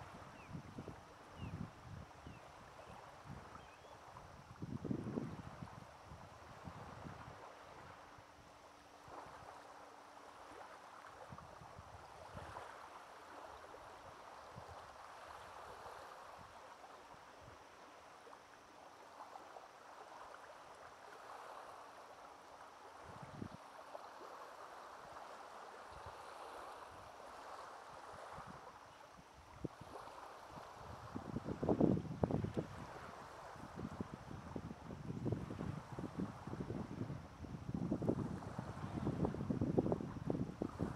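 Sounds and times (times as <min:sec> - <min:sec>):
wind buffeting microphone: 0:04.3 - 0:07.4, 0:30.6 - 0:40.9.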